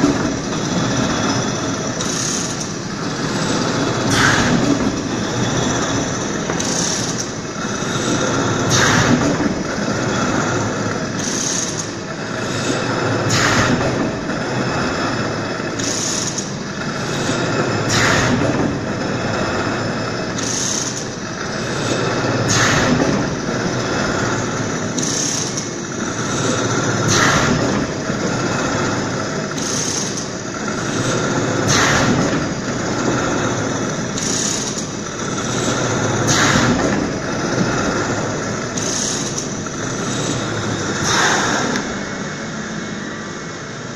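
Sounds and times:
veneer slicer machine drone: 0.0s - 43.9s.

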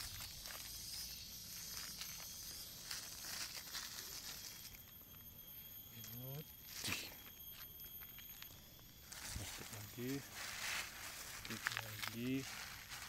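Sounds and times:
plastic wrappers crinkling: 0.0s - 4.8s, 9.2s - 13.0s.

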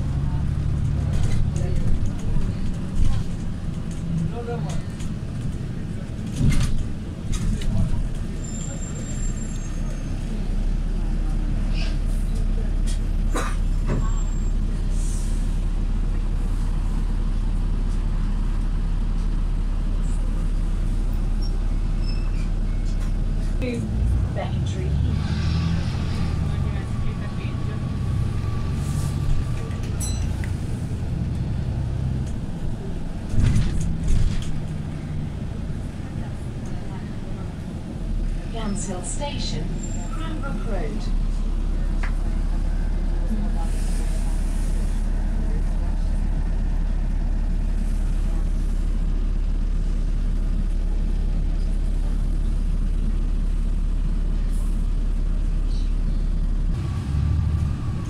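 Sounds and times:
bus engine humming: 0.0s - 58.0s
knocks and rattles from bus body: 0.1s - 8.4s, 12.4s - 14.3s, 29.2s - 35.0s.

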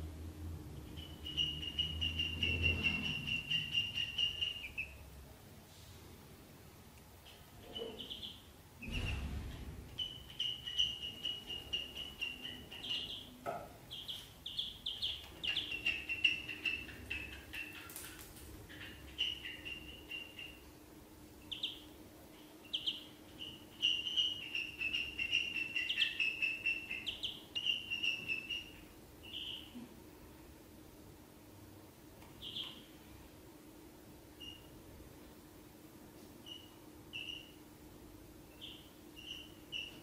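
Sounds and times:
faint steady hum: 0.0s - 40.0s
ducklings peeping: 0.6s - 5.1s, 7.2s - 29.9s, 32.3s - 33.0s, 34.4s - 34.8s, 36.4s - 37.8s, 38.4s - 40.0s.

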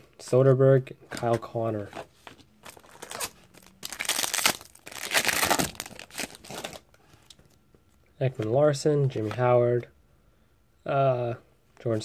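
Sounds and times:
foil wrapper crinkling and tearing: 2.7s - 7.0s.

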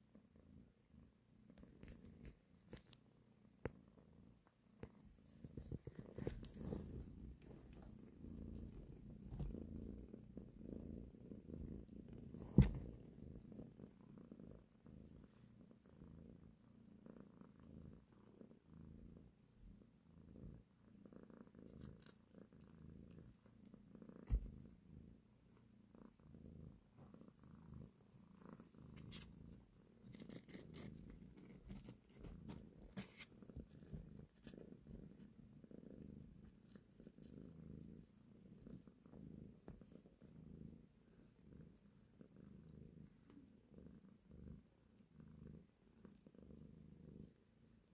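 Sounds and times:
cat purring: 0.0s - 47.9s
dull thump: 12.4s - 13.0s.

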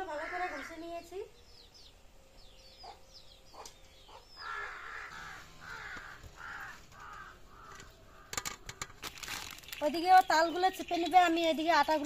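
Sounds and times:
bird harsh calls: 1.5s - 11.3s
thin high bird chirps: 9.0s - 12.0s.

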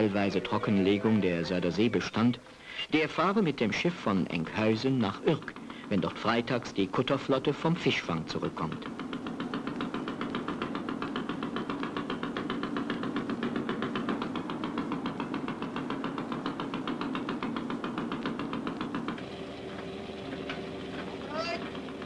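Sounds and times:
diesel boat engine knocking: 0.0s - 2.4s, 3.0s - 22.0s.

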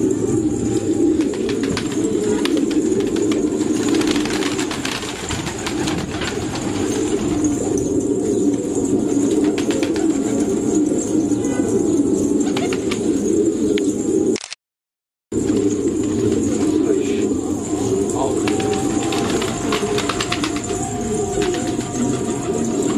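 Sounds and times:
pigeons cooing: 0.0s - 14.4s, 15.4s - 22.9s
pigeon wing flaps: 1.2s - 7.8s, 9.2s - 10.6s, 12.4s - 13.2s, 18.4s - 22.6s.

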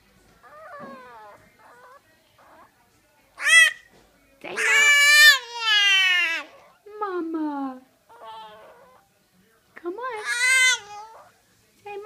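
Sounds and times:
puppy crying: 0.4s - 2.7s, 3.4s - 3.8s, 4.6s - 6.7s, 8.1s - 9.1s, 10.2s - 11.3s
puppy yelp: 0.4s - 2.7s.

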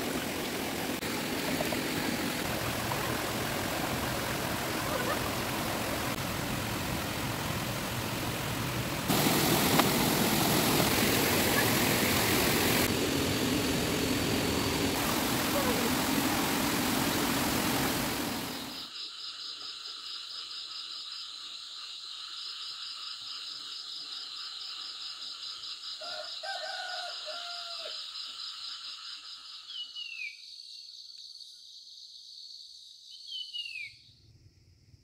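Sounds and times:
insects chorus: 9.1s - 34.2s.

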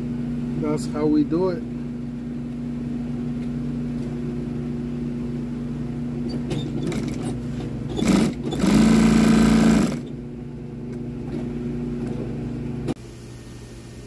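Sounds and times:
sewing machine stitching: 6.5s - 10.1s
sewing machine motor humming: 6.5s - 10.2s.

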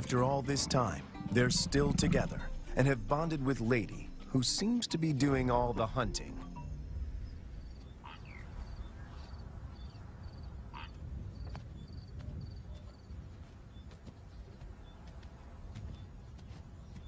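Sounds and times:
wind rumble: 1.1s - 13.5s.

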